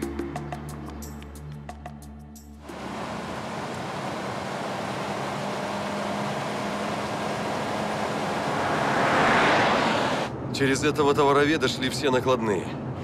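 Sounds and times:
car engine and tyre noise: 2.6s - 10.6s.

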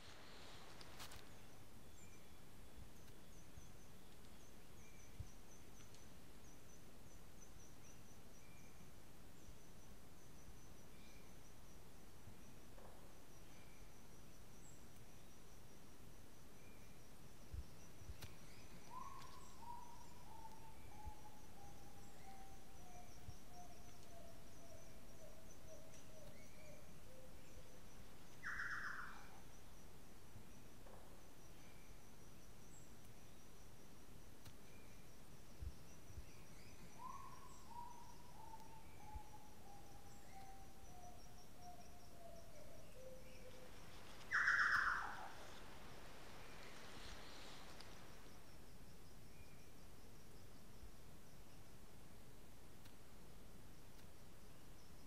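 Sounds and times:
steady hiss: 0.0s - 7.9s, 43.2s - 55.0s
faint high chirping: 16.5s - 29.8s, 34.6s - 47.9s.

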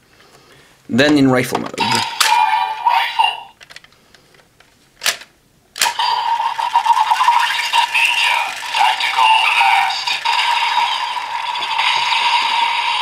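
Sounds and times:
toy gun electronic sound effects: 1.8s - 3.6s, 5.8s - 13.0s
sharp plastic clicks: 3.6s - 6.0s.

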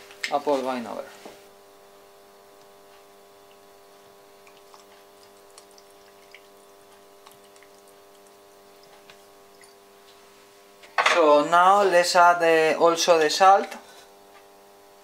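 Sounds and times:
steady low hum: 0.0s - 15.0s
liquid dripping and splashing: 2.6s - 10.1s.

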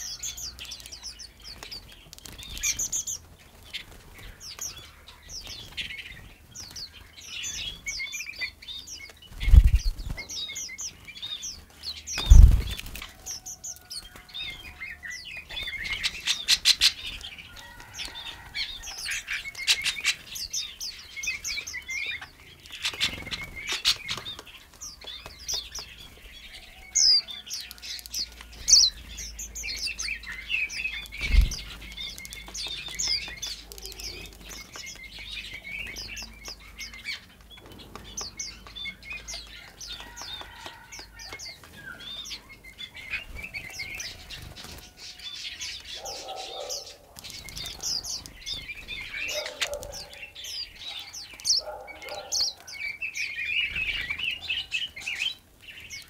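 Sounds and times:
songbirds chirping and twittering: 0.0s - 56.0s
wings fluttering: 9.1s - 11.0s, 11.6s - 14.8s, 22.7s - 26.3s, 30.3s - 35.2s.

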